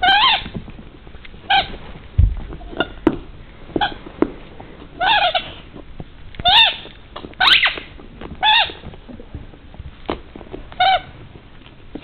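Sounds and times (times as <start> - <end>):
rubber dog toy squeaking: 0.0 - 0.6, 1.4 - 1.8, 2.5 - 3.1, 5.0 - 5.6, 6.4 - 8.9, 10.8 - 11.2.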